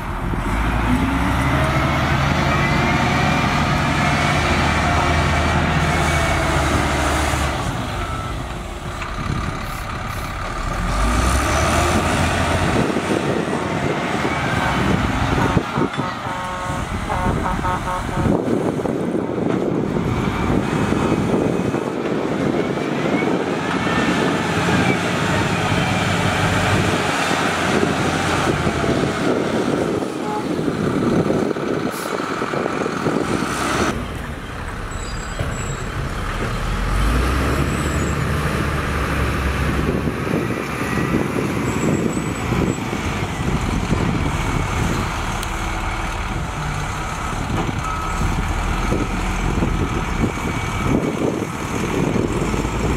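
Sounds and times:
deep steady truck engine: 0.0 - 52.9
wheel loader diesel engine: 0.0 - 52.9.

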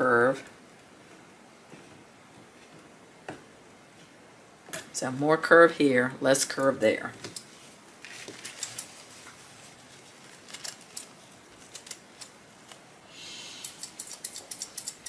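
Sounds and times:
material rustling: 7.2 - 12.9.

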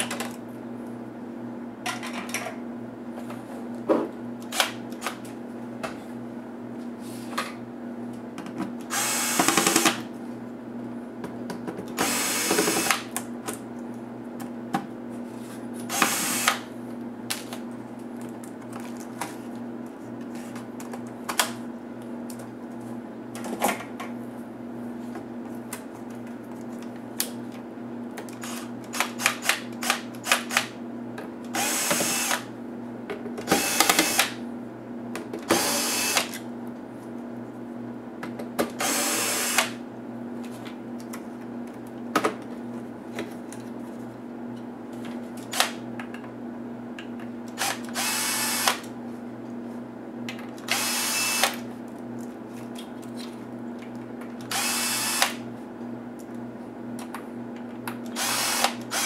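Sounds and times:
cordless drill whirring: 8.9 - 10.0, 12.0 - 13.0, 15.9 - 16.6, 31.5 - 32.5, 33.5 - 34.4, 35.5 - 36.3, 38.8 - 39.8, 47.6 - 48.8, 50.7 - 51.6, 54.5 - 55.4, 58.2 - 59.0.

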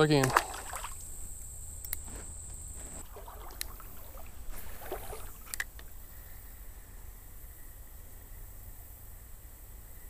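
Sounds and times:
water sloshing around wading person: 0.0 - 1.1, 2.0 - 5.8
low steady rumble: 0.0 - 10.0.

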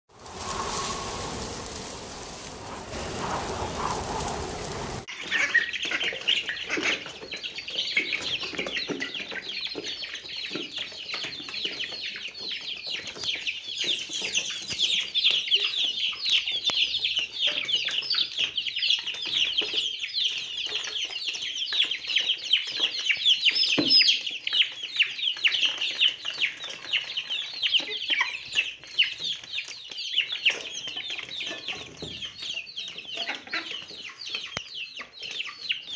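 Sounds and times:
rain-like hiss: 0.1 - 5.1
ducklings peeping: 0.2 - 35.9.

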